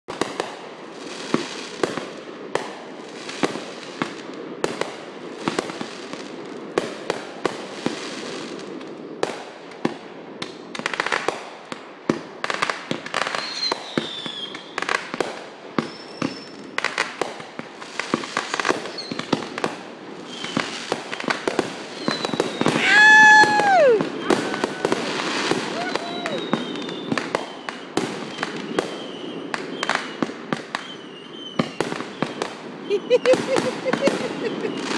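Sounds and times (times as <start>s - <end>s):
fireworks crackling: 0.1s - 34.9s
fireworks pops and bangs: 0.1s - 34.9s
fireworks falling whistles: 12.5s - 34.9s.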